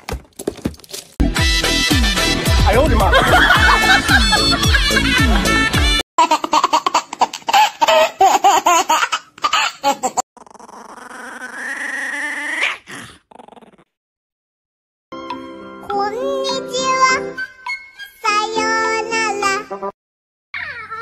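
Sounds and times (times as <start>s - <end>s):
music: 1.2s - 6.0s, 15.2s - 19.9s
baby laughing: 3.3s - 12.7s.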